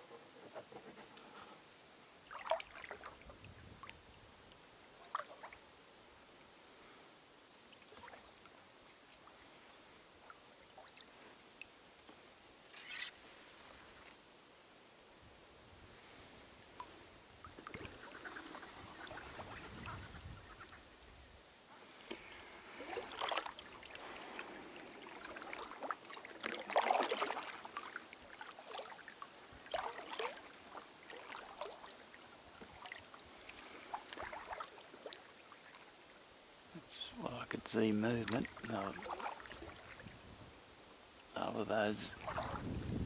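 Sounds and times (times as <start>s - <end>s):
paddle splashing through water: 2.2s - 3.9s, 5.0s - 5.6s, 7.7s - 8.3s, 16.7s - 20.8s, 21.9s - 36.2s, 38.2s - 40.2s, 42.1s - 42.8s.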